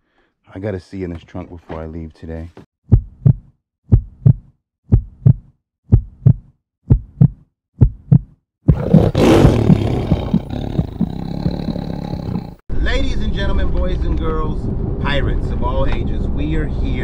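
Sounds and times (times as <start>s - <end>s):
heartbeat-like double thumps: 2.9s - 12.6s
rushing roar and heavy rumble: 13.2s - 17.0s.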